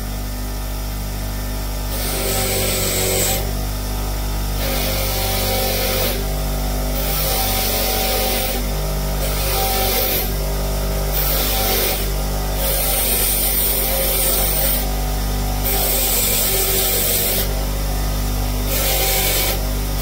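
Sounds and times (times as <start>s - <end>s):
bench grinder motor hum: 0.0s - 20.0s
metal rubbing on grinding wheel: 1.9s - 3.5s, 4.6s - 6.3s, 7.0s - 10.4s, 11.1s - 15.0s, 15.6s - 17.7s, 18.6s - 20.0s.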